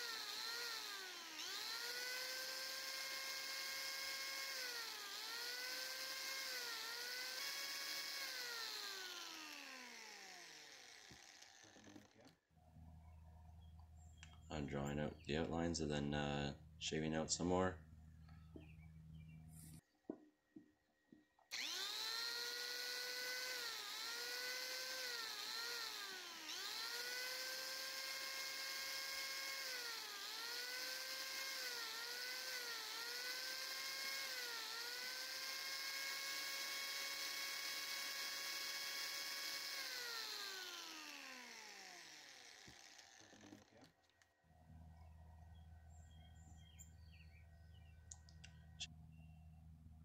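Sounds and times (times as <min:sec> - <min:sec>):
angle grinder whine: 0:00.0 - 0:12.4, 0:21.5 - 0:47.4.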